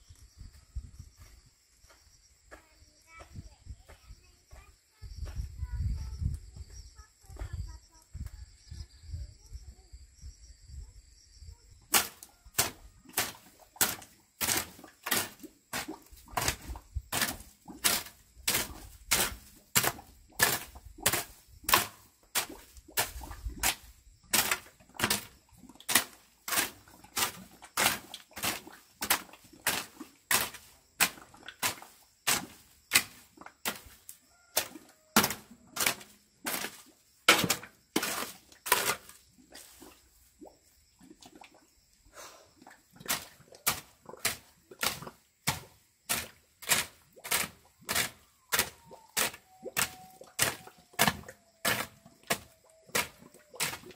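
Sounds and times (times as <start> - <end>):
hoe chopping into dry soil: 11.9 - 39.2, 43.1 - 53.9.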